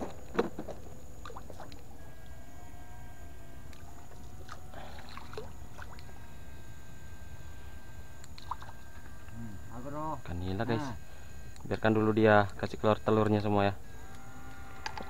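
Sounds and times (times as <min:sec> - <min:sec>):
water swishing and sloshing: 0:00.0 - 0:01.9, 0:03.7 - 0:06.2
faint high whine: 0:00.0 - 0:15.0.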